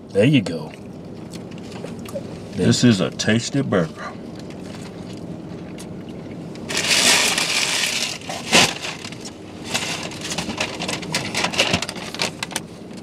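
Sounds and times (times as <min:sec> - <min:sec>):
paper wrappers crinkling: 0:06.7 - 0:12.6.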